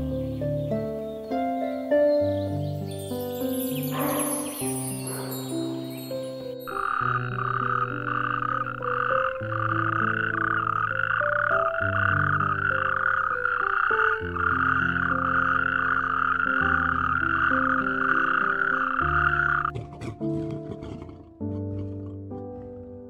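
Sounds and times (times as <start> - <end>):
slow sustained background music: 0.0 - 23.0
toads trilling: 3.8 - 21.1.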